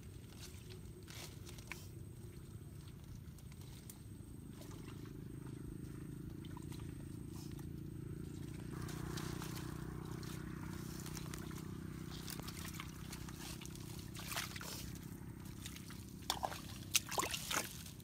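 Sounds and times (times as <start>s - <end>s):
hands squelching in wet mud: 8.4s - 18.0s.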